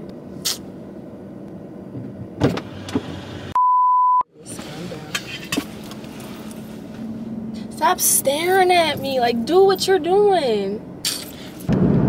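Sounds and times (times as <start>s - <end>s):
censor bleep: 3.6s - 4.3s
car cabin hum: 4.4s - 11.0s.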